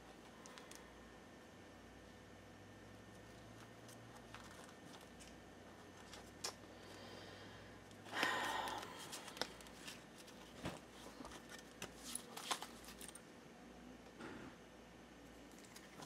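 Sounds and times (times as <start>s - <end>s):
papery rustle of card deck: 3.9s - 6.6s, 8.8s - 13.2s
cards clicking and tapping: 8.1s - 13.2s.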